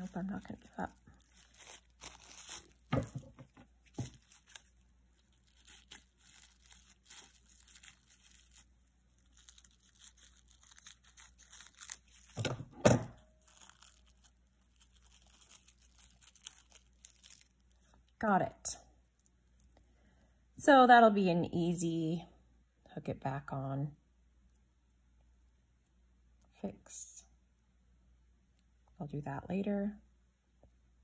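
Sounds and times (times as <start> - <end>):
plastic wrap crinkling: 0.0 - 18.2.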